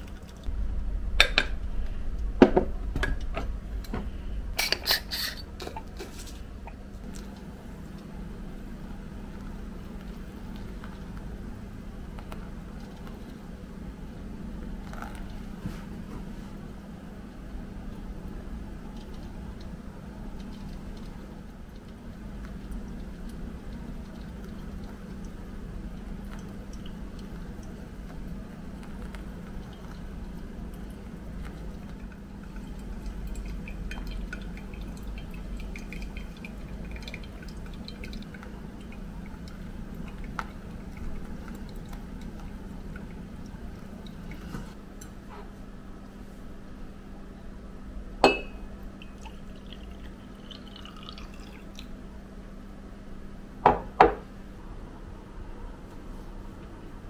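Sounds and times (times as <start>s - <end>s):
steady low hum: 0.0s - 57.0s
liquid pouring into glass: 30.7s - 44.4s, 48.2s - 51.9s
glass clink: 48.2s - 48.6s.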